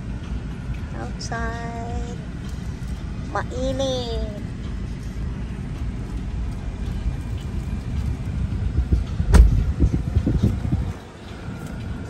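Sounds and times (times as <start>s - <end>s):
car rumble from inside cabin: 0.0s - 12.0s
sharp knock: 9.3s - 9.6s.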